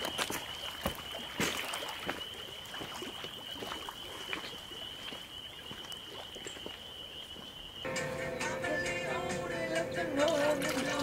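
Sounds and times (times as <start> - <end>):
waves lapping on shore: 0.0 - 6.8.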